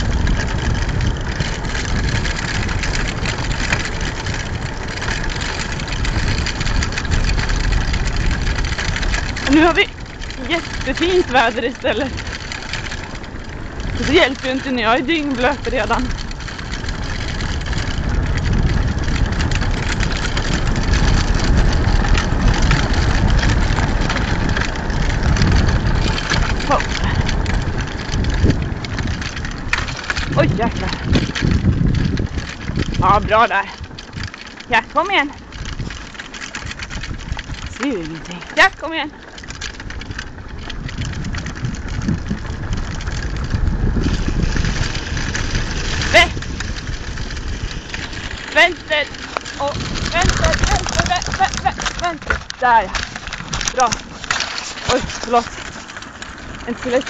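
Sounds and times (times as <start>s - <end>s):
wheeled rig rumbling and rattling: 0.0s - 57.0s
small clicks and knocks: 47.9s - 57.0s.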